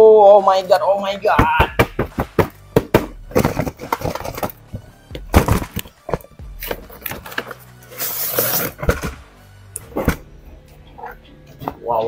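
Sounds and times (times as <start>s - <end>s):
cardboard and plastic crinkling: 2.0s - 9.2s.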